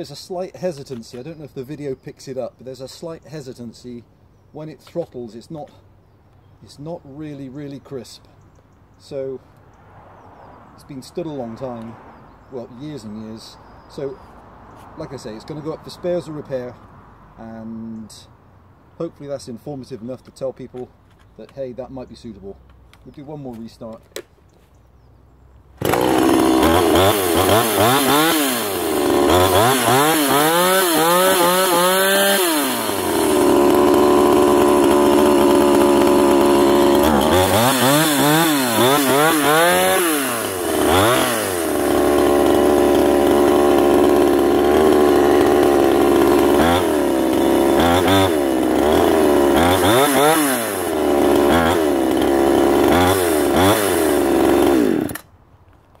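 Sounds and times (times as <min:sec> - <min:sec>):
chainsaw revving: 0:25.8 - 0:55.3.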